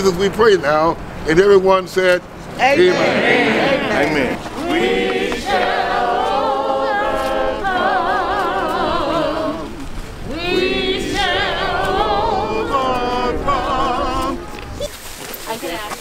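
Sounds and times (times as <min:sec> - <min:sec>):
person singing with vibrato: 0:02.8 - 0:14.6.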